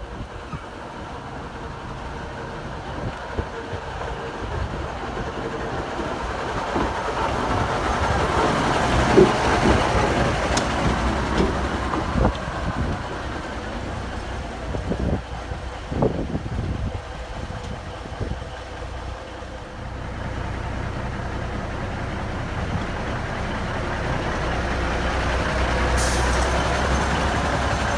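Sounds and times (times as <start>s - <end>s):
diesel locomotive rolling past: 0.0s - 27.9s
wheels knocking on track: 2.3s - 19.6s.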